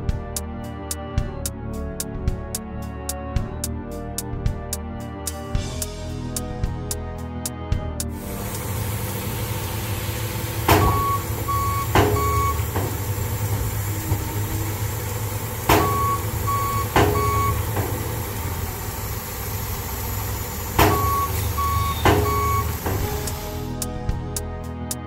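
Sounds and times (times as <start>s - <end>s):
truck engine idling: 8.0s - 24.5s
tailgate slamming metal bangs: 10.6s - 13.2s, 15.7s - 18.2s, 20.8s - 23.2s
short high beeps: 21.0s - 22.7s.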